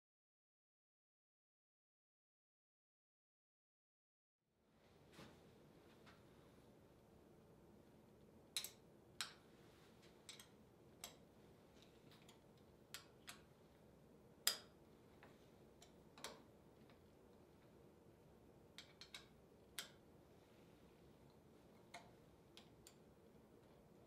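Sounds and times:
sharp metallic clicks and taps: 10.3 - 11.2.

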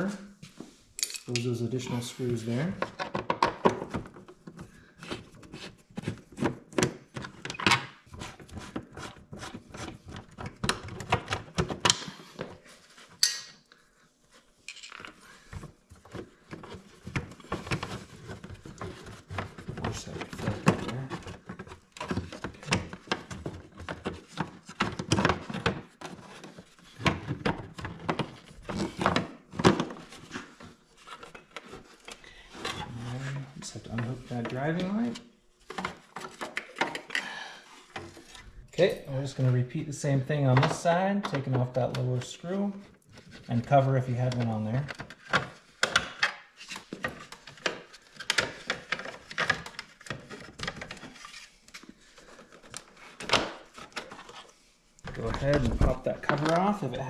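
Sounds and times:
plastic panels clicking and rubbing: 44.2 - 57.0.

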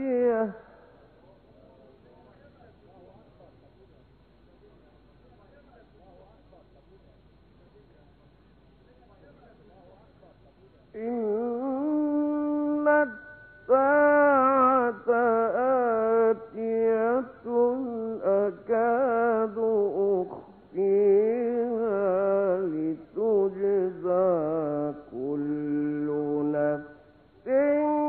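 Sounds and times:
man chanting melodically: 10.9 - 28.0.

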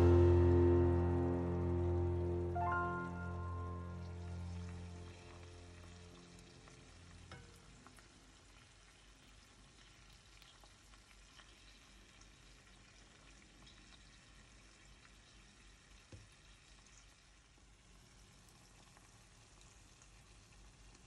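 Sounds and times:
oil crackles and pops: 4.4 - 21.0.

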